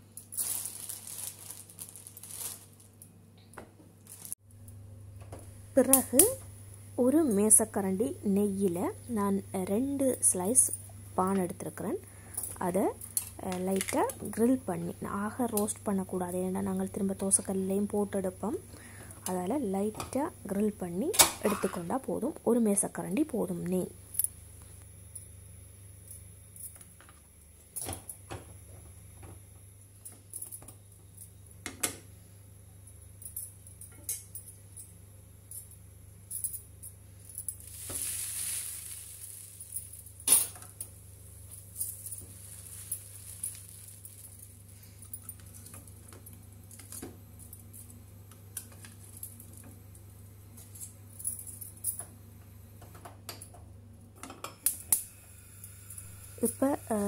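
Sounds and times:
bread sizzling in ghee: 37.1 - 46.6.

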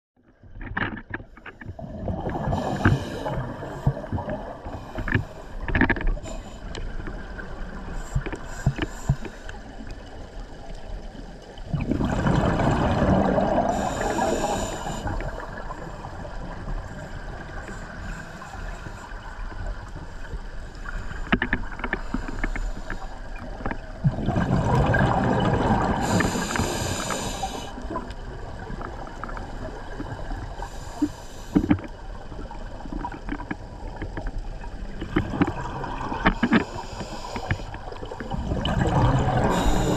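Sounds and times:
diver exhaling bubbles: 11.7 - 15.6, 24.0 - 28.1, 38.2 - 39.9
steady hiss: 13.7 - 15.4, 26.0 - 27.8, 39.5 - 39.9.

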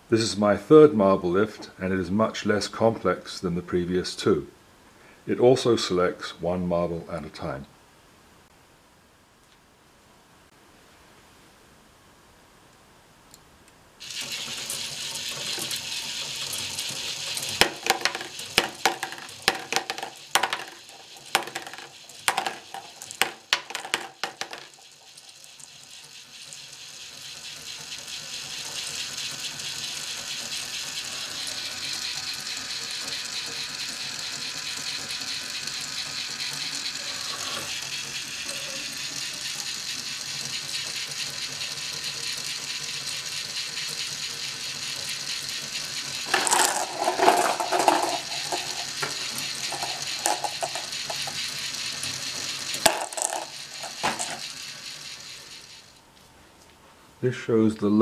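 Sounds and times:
toy motor driving plastic chain: 14.0 - 56.0
glass marbles clattering: 17.4 - 25.7, 46.2 - 51.5, 52.7 - 54.5.

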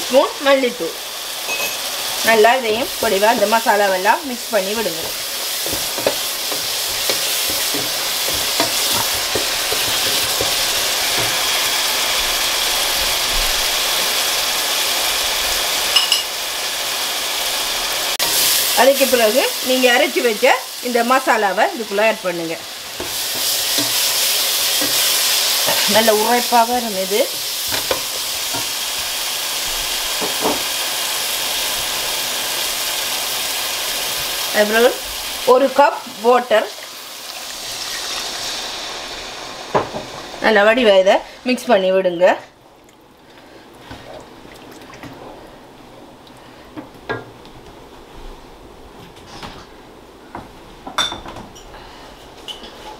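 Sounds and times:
masala sizzling in a pot: 0.0 - 44.5
wooden spoon scraping a pot: 4.8 - 11.4.

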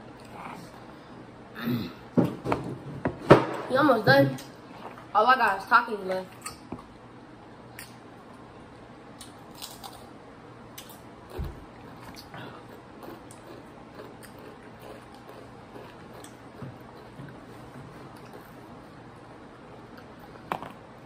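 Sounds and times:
crunchy snacks being chewed: 9.2 - 10.1, 10.8 - 17.2.

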